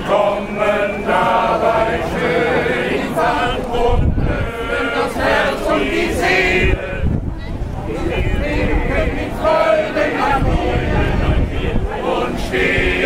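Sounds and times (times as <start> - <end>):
male choir singing: 0.0 - 7.2, 7.8 - 13.0.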